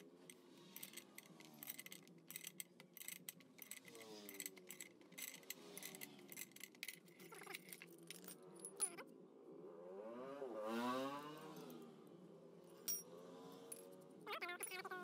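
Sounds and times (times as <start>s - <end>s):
steel hand tools clinking: 0.0s - 9.0s
passing vehicle engine: 9.5s - 12.5s.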